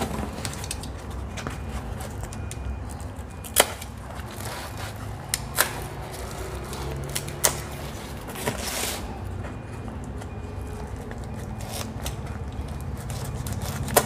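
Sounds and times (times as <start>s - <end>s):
scraping rustle: 6.0s - 9.5s
knife snapping plastic straps: 13.4s - 14.0s.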